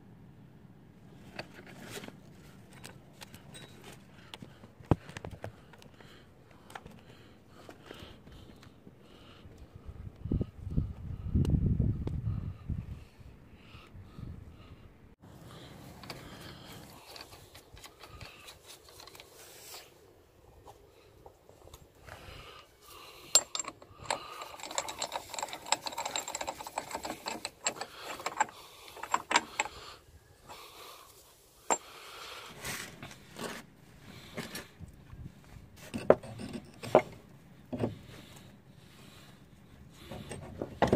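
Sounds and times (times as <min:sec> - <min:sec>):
metal clicks and knocks of tools: 0:16.0 - 0:19.3, 0:23.2 - 0:29.8.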